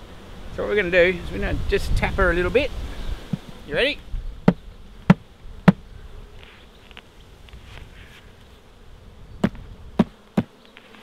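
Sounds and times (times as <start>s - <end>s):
bees humming: 0.0s - 11.0s
sharp taps on beehive lid: 4.4s - 5.8s, 9.4s - 10.6s.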